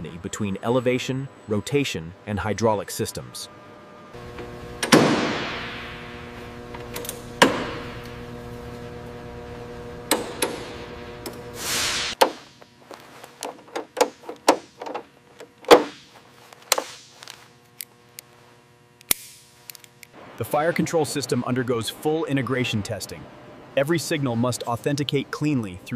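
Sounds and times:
steady low hum: 0:00.0 - 0:25.9
short rising hiss: 0:11.5 - 0:12.2.

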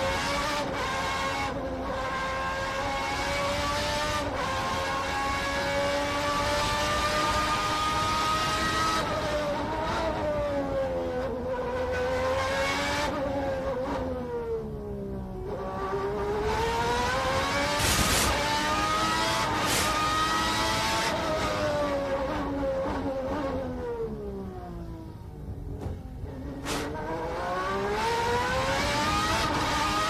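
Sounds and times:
racing car engine: 0:00.0 - 0:30.0.

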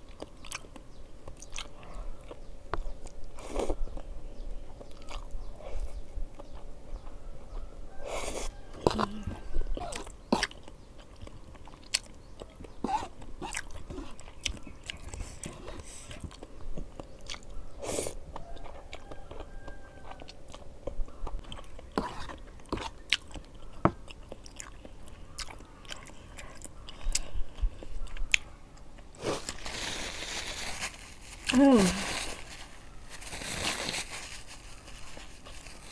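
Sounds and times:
person chewing and slurping noodles: 0:12.9 - 0:28.4.

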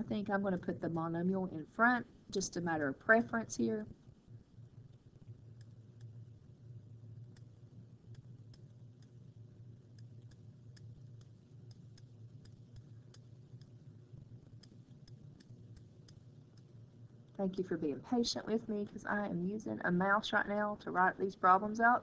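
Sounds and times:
low steady hum: 0:00.0 - 0:22.0
computer mouse clicks: 0:05.0 - 0:06.2, 0:07.2 - 0:09.2, 0:09.9 - 0:13.8, 0:14.4 - 0:16.7.

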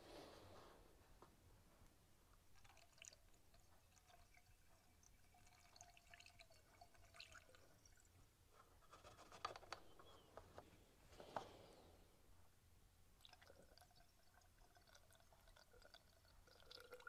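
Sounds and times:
small drips and ticks: 0:02.3 - 0:08.4, 0:13.2 - 0:17.0
liquid trickling down a hose: 0:02.5 - 0:08.2, 0:13.2 - 0:17.0.

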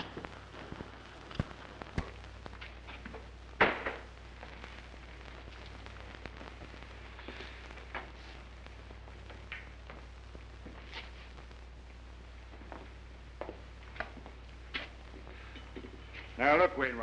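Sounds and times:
clicks and pops: 0:00.0 - 0:10.5
low film soundtrack hum: 0:00.0 - 0:17.0.

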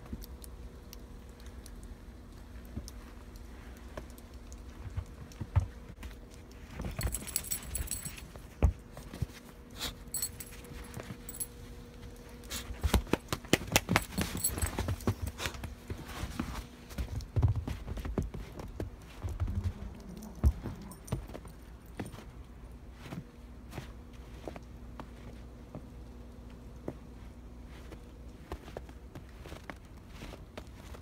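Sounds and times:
light metallic jingling: 0:06.8 - 0:08.5, 0:09.8 - 0:12.8, 0:13.8 - 0:15.4
footsteps crunching in snow: 0:26.9 - 0:31.0.

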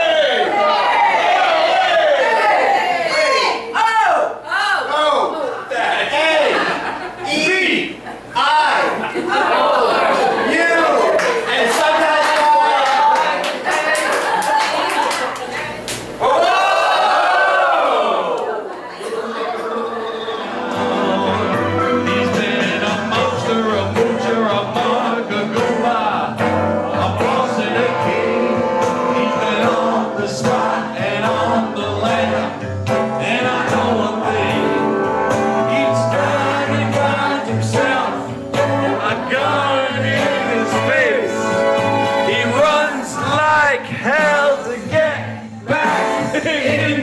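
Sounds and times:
people singing together: 0:18.9 - 0:47.0.

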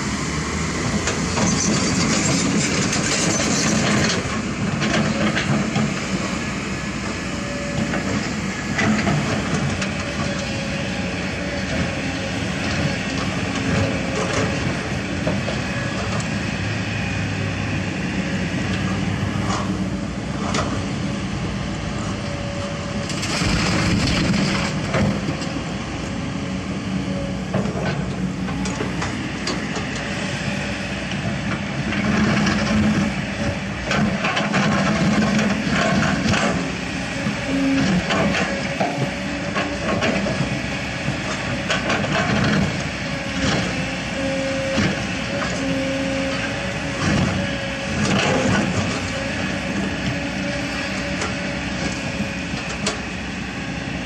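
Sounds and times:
excavator diesel engine running: 0:00.0 - 0:54.0
rubble scraping and clattering: 0:23.2 - 0:25.1.

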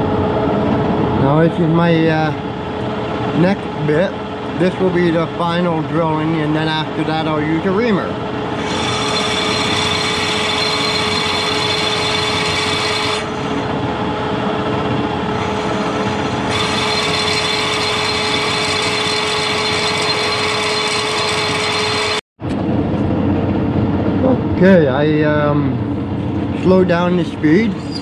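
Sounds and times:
metal lathe whining: 0:02.8 - 0:22.2
drill cutting noise: 0:08.5 - 0:13.7, 0:15.2 - 0:22.2.

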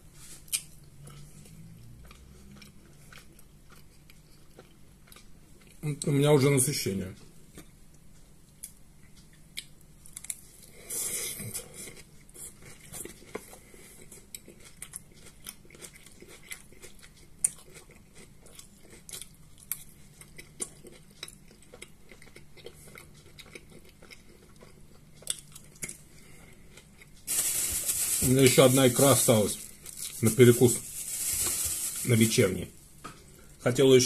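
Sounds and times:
person chewing: 0:00.2 - 0:05.8, 0:08.6 - 0:28.2.

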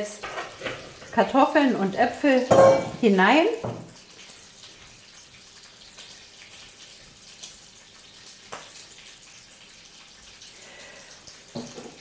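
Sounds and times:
spoon knocking against pot: 0:02.5 - 0:03.9.

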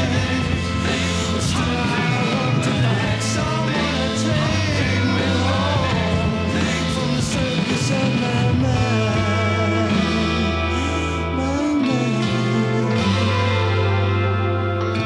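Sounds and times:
bass and guitars: 0:00.0 - 0:15.0.

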